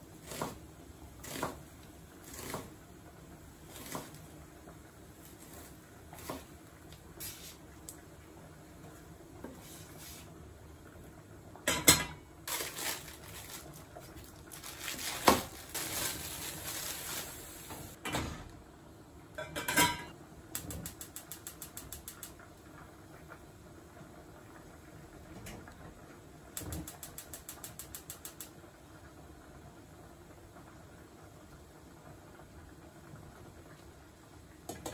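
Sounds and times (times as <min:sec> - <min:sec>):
pot boiling over hiss: 0:00.0 - 0:18.0, 0:18.6 - 0:34.9
crinkling: 0:12.5 - 0:18.0.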